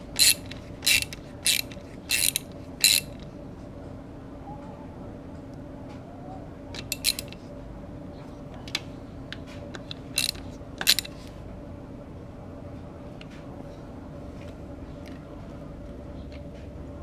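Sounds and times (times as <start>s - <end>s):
steady low hum: 0.0s - 17.0s
metallic clinks of socket wrench: 0.2s - 3.2s, 6.8s - 7.4s, 10.2s - 11.1s.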